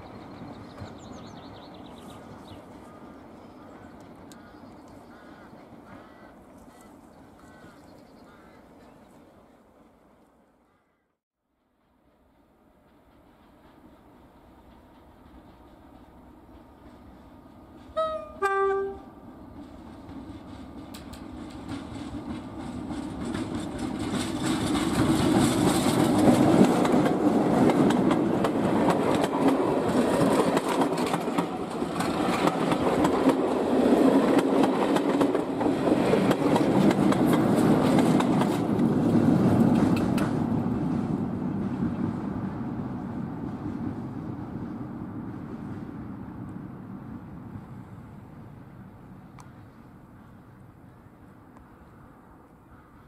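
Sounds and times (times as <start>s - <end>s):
train rumbling past: 0.0s - 10.8s, 11.5s - 53.0s
two-tone locomotive horn: 17.9s - 19.2s.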